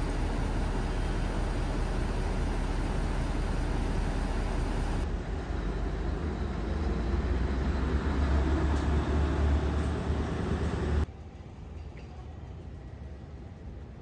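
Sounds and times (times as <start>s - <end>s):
large vehicle engine rumbling: 0.0s - 11.1s.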